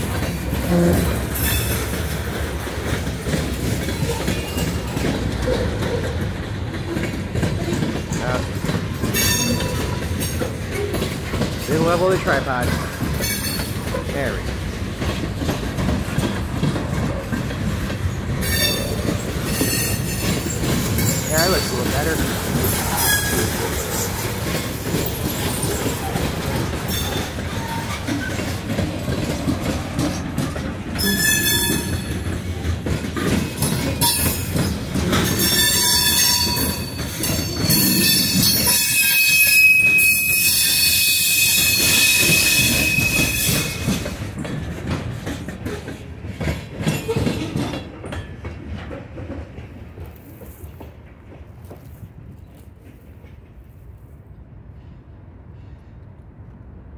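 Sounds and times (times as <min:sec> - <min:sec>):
freight train rolling past: 0:00.0 - 0:56.9
shrill wheel squeal: 0:01.0 - 0:01.9, 0:09.1 - 0:10.4, 0:13.2 - 0:13.8, 0:18.4 - 0:28.6, 0:31.0 - 0:32.2, 0:33.6 - 0:44.0.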